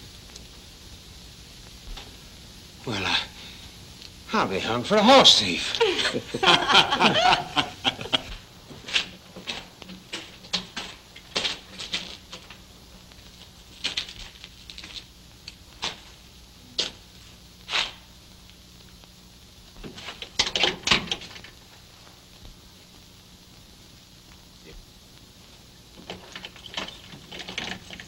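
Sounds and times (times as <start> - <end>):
faint soundtrack hum: 0.0 - 28.0.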